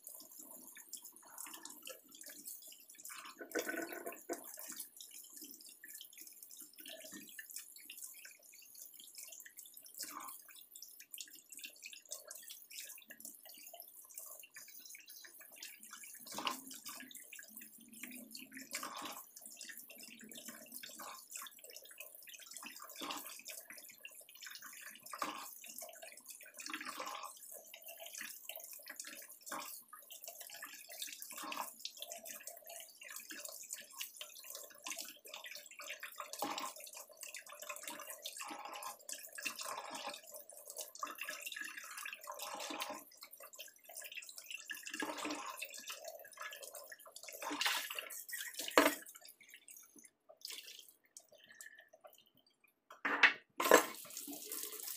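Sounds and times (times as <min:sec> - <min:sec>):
tap running into metal sink: 0:03.4 - 0:04.6.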